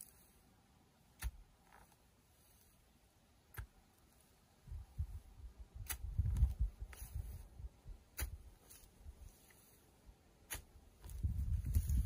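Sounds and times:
shovel chopping into soil: 0:01.2 - 0:01.5, 0:05.8 - 0:07.3, 0:08.1 - 0:09.6, 0:10.4 - 0:12.0
dull low thumps of earth: 0:03.5 - 0:12.0.

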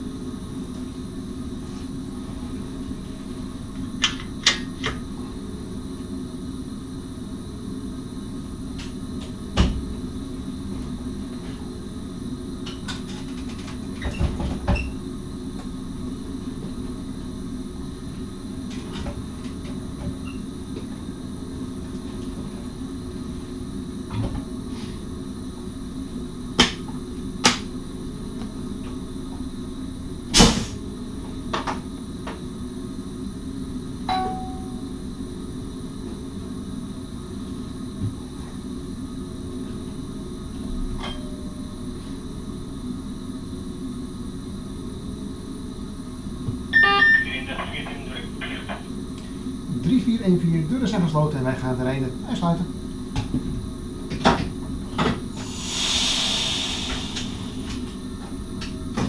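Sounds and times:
electric train cab hum: 0:34.0 - 0:35.2, 0:46.0 - 0:49.7, 0:54.0 - 0:59.0.

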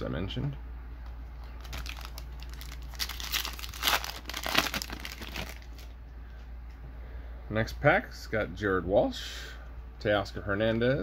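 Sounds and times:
wrapper crinkling and tearing: 0:01.6 - 0:05.9.

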